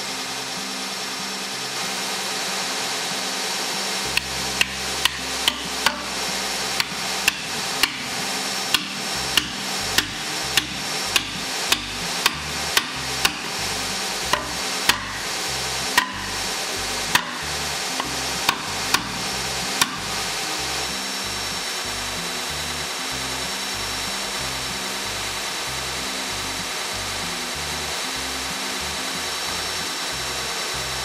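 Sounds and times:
background music: 4.0s - 31.0s
hammer striking wooden spokes: 4.1s - 20.5s.

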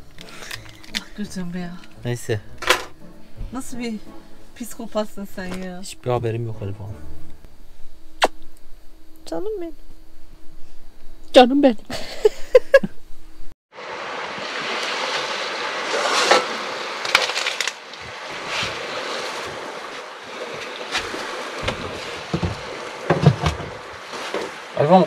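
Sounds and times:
people laughing: 11.9s - 12.9s
surf: 13.7s - 25.0s.

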